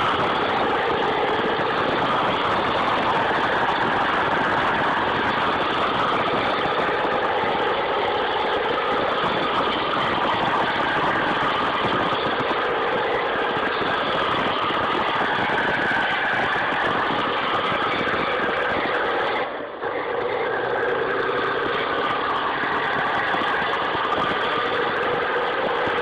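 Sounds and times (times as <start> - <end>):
diesel tractor engine under load: 0.0 - 26.0.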